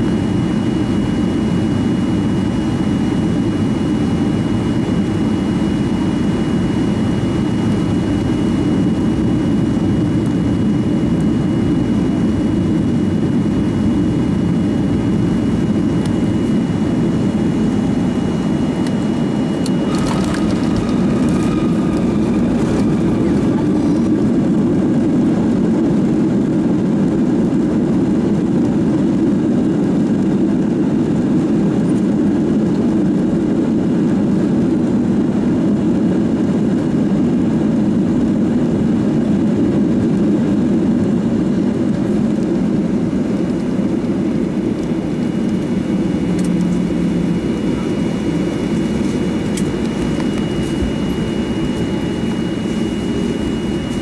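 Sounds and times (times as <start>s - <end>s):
faint high whine: 0.0s - 25.2s, 42.8s - 54.0s
aircraft engine and airflow roar: 0.0s - 54.0s.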